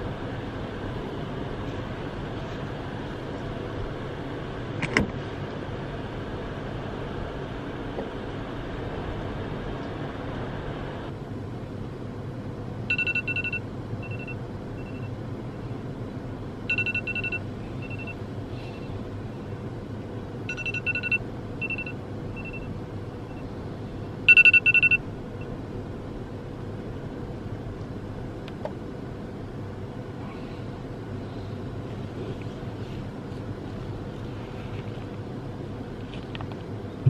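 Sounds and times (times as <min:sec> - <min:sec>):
steady low hum: 0:00.0 - 0:37.0
alarm beeping: 0:12.9 - 0:15.1, 0:16.7 - 0:18.2, 0:20.5 - 0:22.7, 0:24.3 - 0:25.0.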